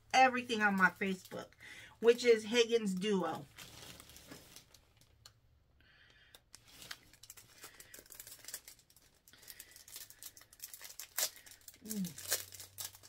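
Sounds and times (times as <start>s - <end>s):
plastic bag crinkling: 3.2s - 5.3s, 6.5s - 13.0s.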